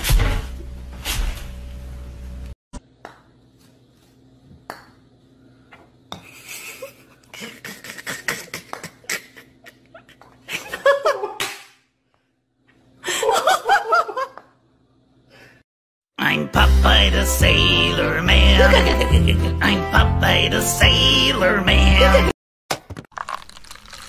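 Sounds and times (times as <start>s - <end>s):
person laughing: 6.2s - 11.4s, 18.3s - 19.8s.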